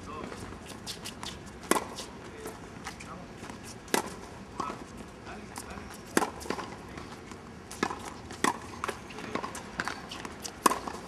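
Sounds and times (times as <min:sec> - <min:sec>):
tennis ball pops: 0:07.7 - 0:11.0.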